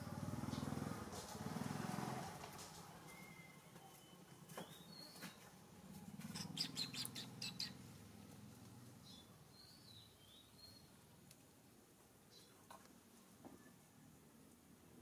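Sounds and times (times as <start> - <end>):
faint bird chirps: 3.0 - 5.5, 6.3 - 7.8.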